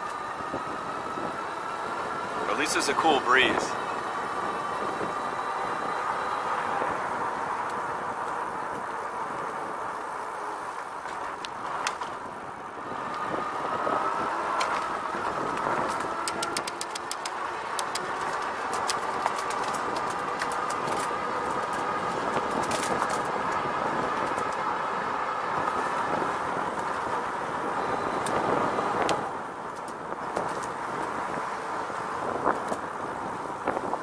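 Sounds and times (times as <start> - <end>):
faint motor whine: 0.0 - 34.0
tyres and wind rushing: 0.0 - 34.0
small sharp rattling clicks: 15.5 - 21.8.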